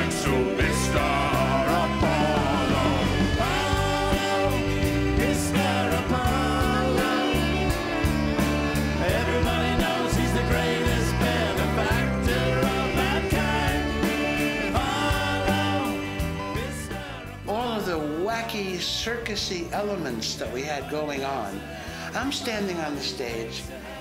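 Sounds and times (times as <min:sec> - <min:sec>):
live rock band playing: 0:00.0 - 0:18.2.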